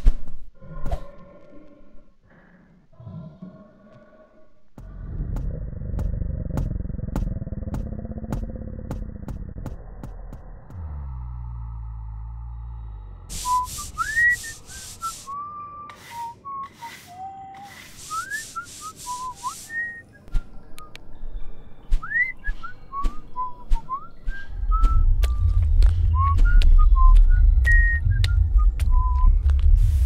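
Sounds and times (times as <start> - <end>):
loud low rumble: 4.8 - 13.9, 24.3 - 30.0
brush scrubbing: 13.3 - 19.9
person whistling a tune: 13.4 - 20.1, 22.0 - 29.3.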